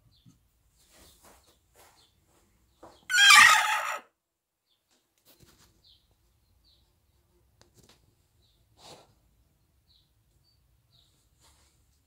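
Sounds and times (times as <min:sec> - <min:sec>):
chicken call: 0:03.1 - 0:04.1.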